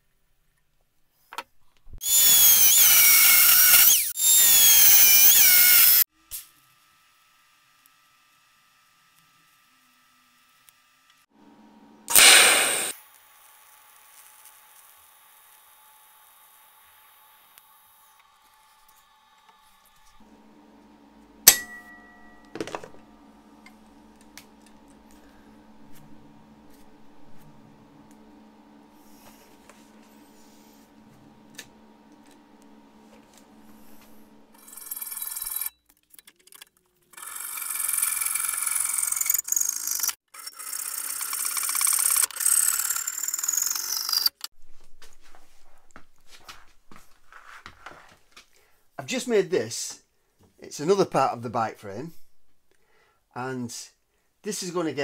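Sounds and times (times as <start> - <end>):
chop saw cutting steel: 2.0 - 6.0, 12.1 - 13.0
high motor whine: 12.1 - 12.9
low hum: 20.3 - 34.6
metallic clink: 21.5 - 22.4.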